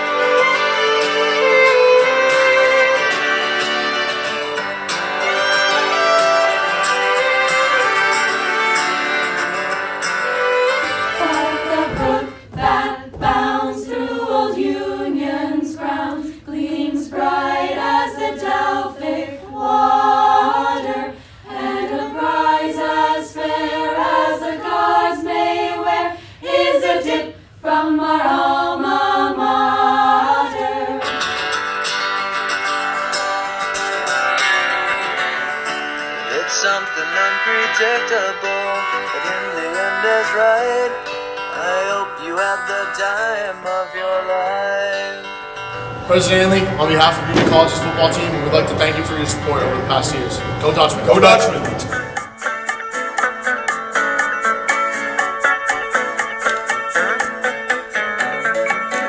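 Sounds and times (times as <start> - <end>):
recorded song with acoustic guitar: 0.0 - 14.6, 30.3 - 59.0
young women singing together: 11.2 - 31.3.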